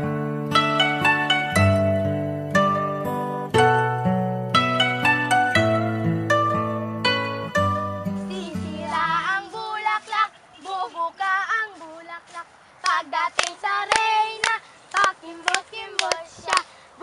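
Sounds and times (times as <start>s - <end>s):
plucked-string music: 0.0s - 9.4s
girls singing together: 8.2s - 17.0s
hand claps in time: 12.8s - 16.7s.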